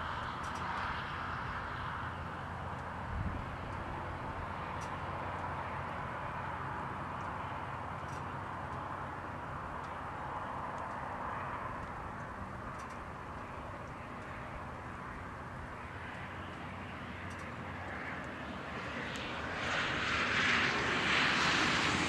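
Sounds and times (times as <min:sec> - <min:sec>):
low outdoor rumble: 0:00.0 - 0:22.0.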